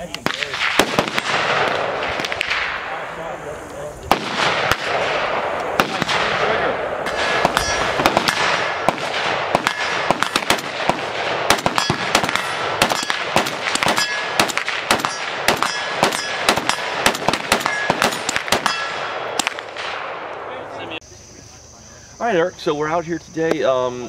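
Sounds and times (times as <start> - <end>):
rapid rifle fire: 0.2 - 3.0, 4.1 - 20.2
steel targets clanging: 7.1 - 8.0, 13.8 - 14.4, 15.0 - 16.9, 17.6 - 19.1.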